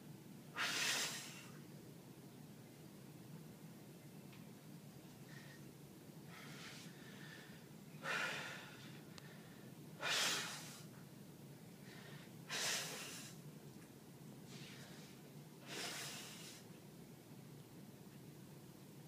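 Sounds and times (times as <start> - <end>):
person breathing hard: 6.3 - 10.9, 14.5 - 16.7.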